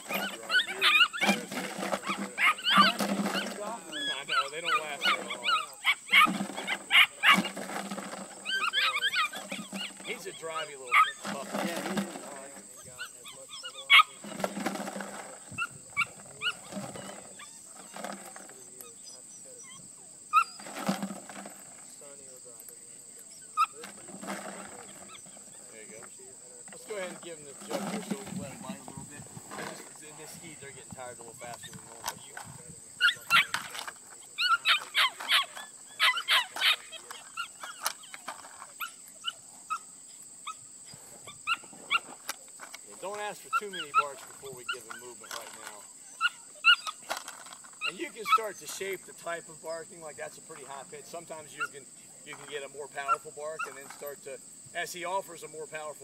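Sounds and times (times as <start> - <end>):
rustling: 0.0 - 19.4, 20.4 - 22.2, 23.1 - 39.4, 40.9 - 55.2
puppy barking: 0.1 - 7.5, 8.4 - 11.2, 33.0 - 33.8, 34.4 - 38.2.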